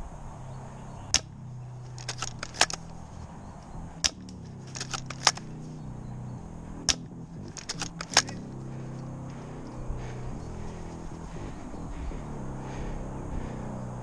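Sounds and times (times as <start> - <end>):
airsoft gun snapping cracks: 1.1 - 3.1, 4.0 - 5.6, 6.8 - 8.5.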